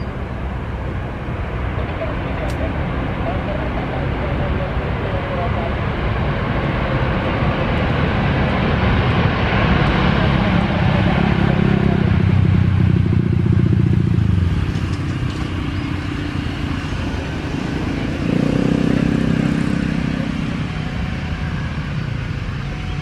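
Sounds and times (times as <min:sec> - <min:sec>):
truck engine: 0:00.0 - 0:23.0
motorcycle passing: 0:09.2 - 0:23.0.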